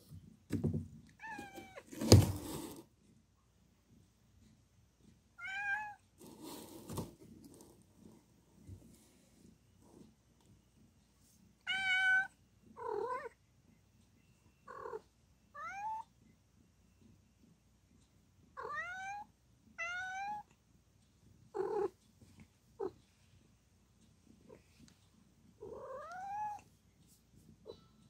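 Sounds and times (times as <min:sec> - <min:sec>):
cat meowing: 0:05.4 - 0:06.0, 0:11.6 - 0:13.4, 0:18.6 - 0:20.5, 0:25.6 - 0:26.6.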